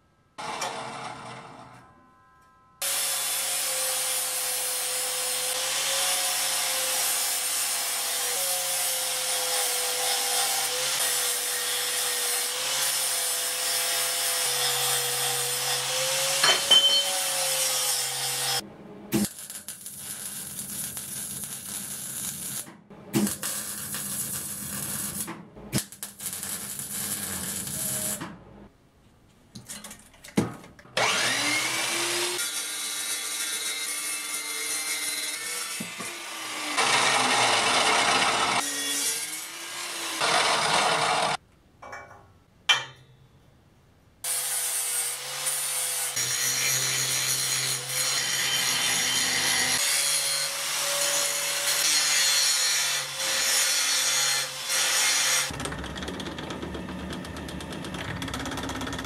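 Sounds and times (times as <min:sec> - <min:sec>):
angle grinder grinding steel: 0:02.8 - 0:18.6, 0:31.0 - 0:41.4
chop saw cutting steel: 0:02.8 - 0:18.6, 0:31.0 - 0:41.4, 0:44.3 - 0:55.6
welder crackling: 0:19.1 - 0:28.3.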